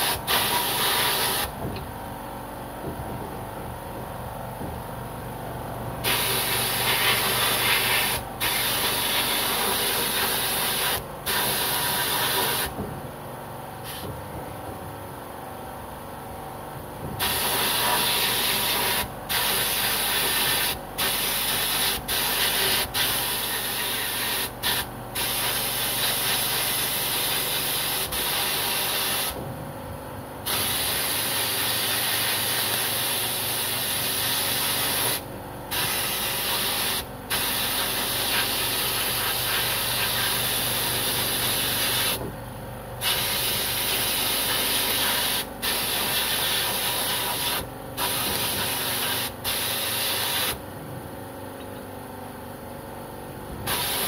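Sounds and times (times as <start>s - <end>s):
air gun blasting hiss: 0.0s - 1.6s, 6.0s - 12.8s, 13.8s - 14.1s, 17.2s - 29.4s, 30.4s - 42.2s, 43.0s - 50.6s, 53.7s - 54.0s.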